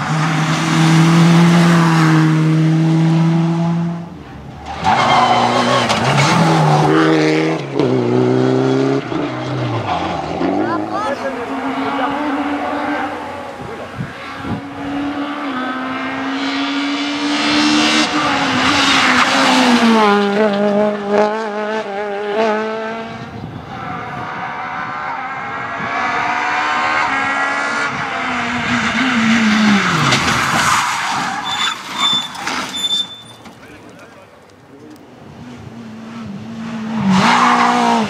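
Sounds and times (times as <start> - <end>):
rally car engines revving: 0.0 - 38.0
tyre squeal: 4.7 - 6.4, 29.6 - 33.7.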